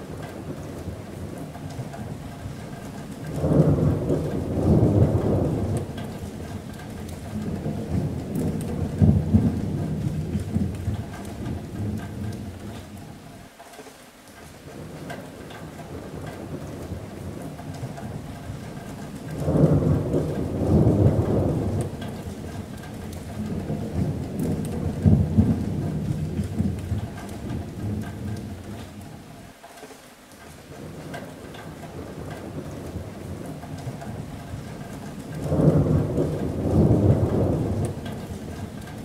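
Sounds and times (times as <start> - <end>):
rolling thunder: 0.0 - 13.0, 14.8 - 29.3, 30.8 - 39.0
rain on a metal roof: 0.0 - 39.0.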